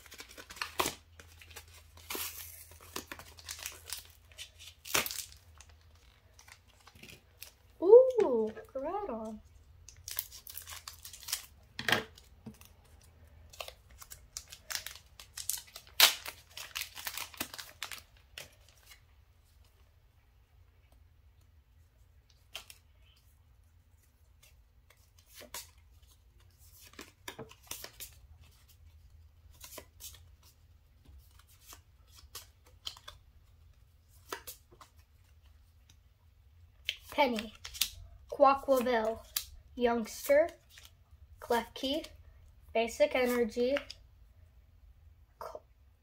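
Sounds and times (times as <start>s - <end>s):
plastic wrapper rustling and tearing: 0.0s - 8.6s, 9.2s - 19.0s, 29.5s - 36.0s, 36.8s - 41.0s.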